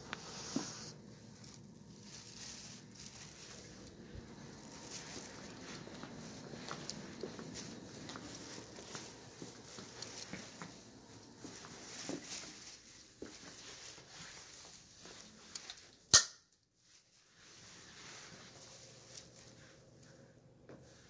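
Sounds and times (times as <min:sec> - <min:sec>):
footsteps: 0:00.0 - 0:16.0
small taps and shuffles: 0:00.0 - 0:16.0, 0:16.9 - 0:21.0.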